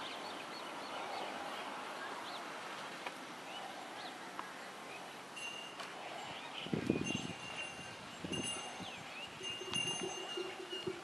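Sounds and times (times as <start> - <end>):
background hiss: 0.0 - 11.0
bell-like ringing tone: 7.1 - 11.0.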